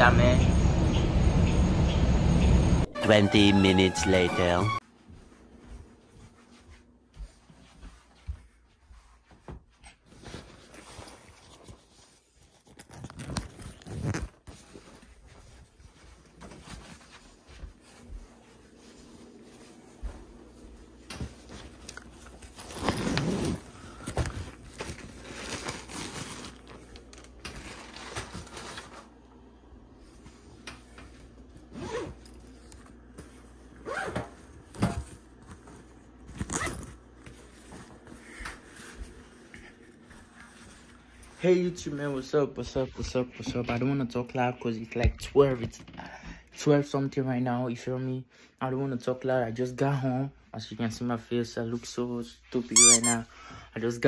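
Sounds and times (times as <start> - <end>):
soft footsteps: 4.8 - 11.9, 14.5 - 25.2
fabric rustling and phone handling: 9.2 - 29.2
backpack zipper being pulled: 22.6 - 23.8, 31.7 - 32.2, 36.3 - 36.9.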